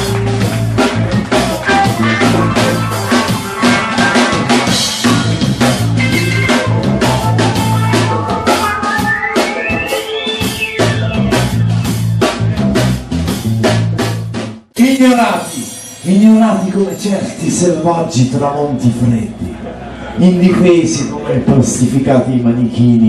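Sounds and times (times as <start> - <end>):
drum beat: 0.0 - 14.7
heavy bass line: 0.0 - 14.7.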